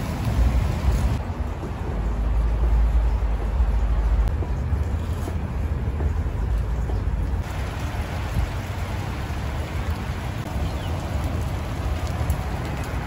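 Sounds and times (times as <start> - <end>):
rain falling on leaves: 0.0 - 1.2, 7.2 - 13.0.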